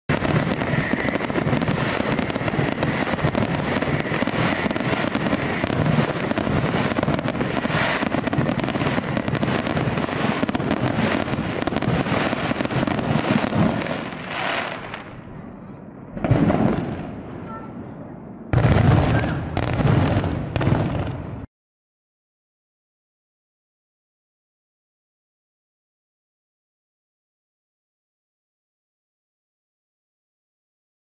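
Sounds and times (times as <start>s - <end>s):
firework shells bursting: 0.1s - 15.1s
fireworks crackling: 0.1s - 17.8s, 18.5s - 21.5s.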